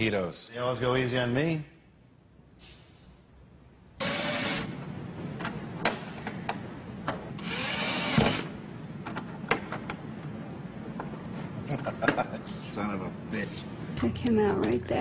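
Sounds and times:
cordless drill driving screws: 4.0s - 4.7s, 7.4s - 8.5s.

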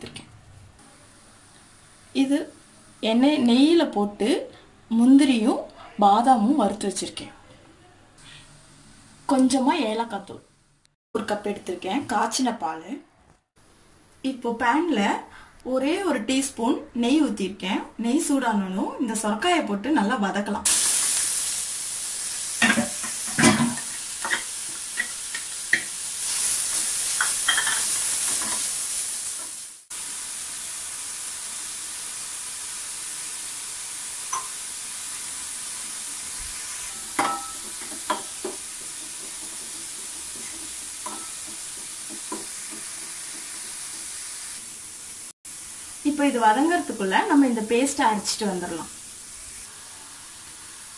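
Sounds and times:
food sizzling in a frying pan: 0.8s - 5.4s, 20.4s - 50.9s
steady hiss: 20.7s - 50.9s
spoon knocking against pan: 34.3s - 34.6s, 37.2s - 44.1s
spoon tapping saucepan: 34.3s - 34.6s, 37.2s - 43.5s.

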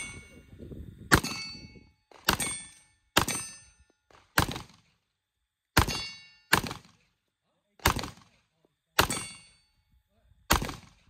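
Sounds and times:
steel target ringing: 1.2s - 3.9s, 5.8s - 6.6s, 9.0s - 9.8s
pistol shots: 2.1s - 5.0s, 5.8s - 7.1s, 7.8s - 8.4s, 9.0s - 9.5s, 10.5s - 11.0s.

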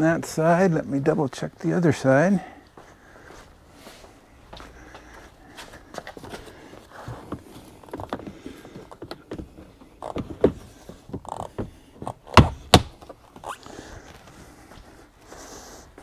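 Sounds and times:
loud plastic thunks: 7.1s - 13.2s.

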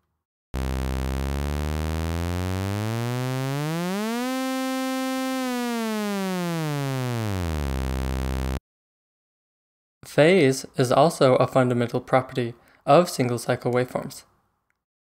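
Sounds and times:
synth sawtooth pitch sweep: 0.6s - 8.6s.

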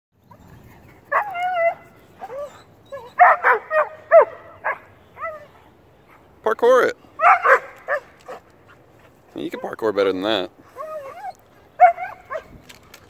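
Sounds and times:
dog whining: 1.1s - 4.2s, 10.7s - 12.5s
dog yelping and barking: 1.1s - 5.6s, 7.2s - 8.5s, 10.7s - 12.6s.

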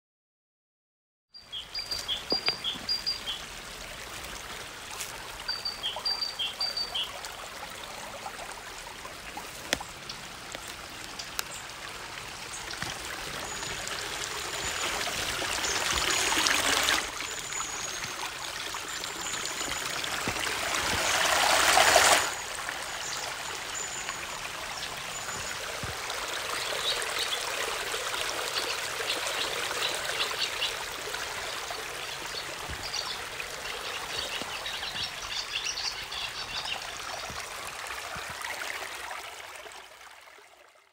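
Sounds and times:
waterfall rushing: 12.0s - 27.9s.

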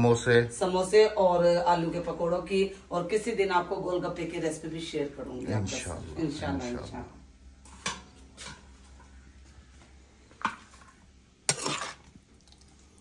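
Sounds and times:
metal spatula scraping steel pan: 11.5s - 12.1s.

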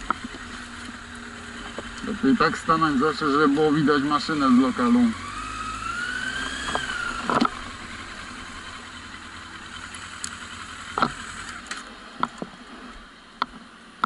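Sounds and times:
motorcycle engine idling: 0.0s - 13.6s
sharp clicks and knocks: 6.4s - 7.6s, 10.2s - 12.5s.

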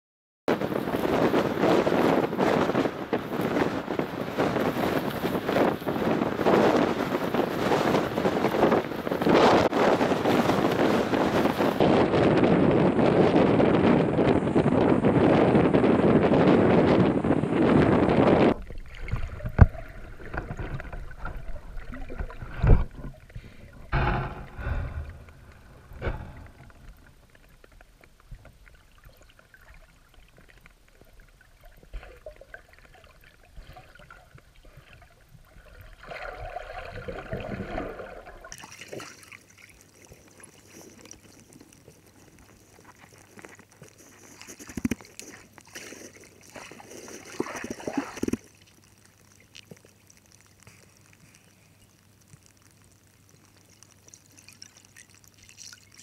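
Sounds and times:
muffled underwater water movement: 0.5s - 56.0s
thin hiss with crackles: 0.6s - 11.9s, 17.2s - 36.0s, 37.7s - 56.0s
water sloshing: 18.5s - 49.9s.

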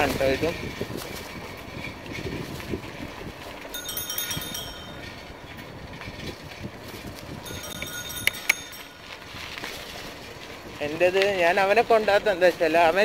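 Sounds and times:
bicycle rumbling and rattling: 0.0s - 13.0s.

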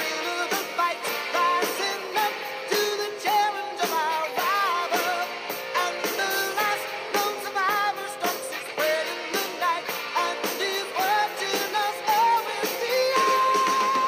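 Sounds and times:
person singing: 0.0s - 14.0s
pop-rock song: 0.0s - 14.0s
steady drum beat: 0.0s - 14.0s.

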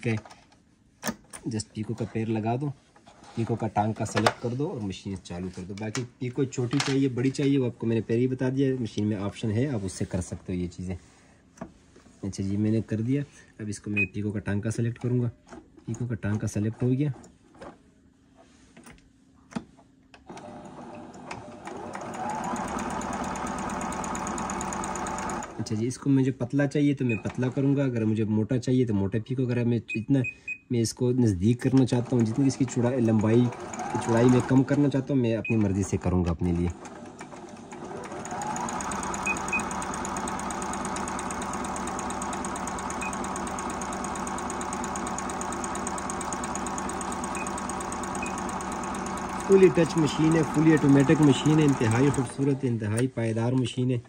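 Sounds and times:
sewing machine clicks: 20.2s - 25.6s, 31.7s - 35.0s, 35.6s - 53.1s
sewing machine stitching: 20.2s - 25.7s, 27.1s - 27.8s, 31.6s - 52.7s.

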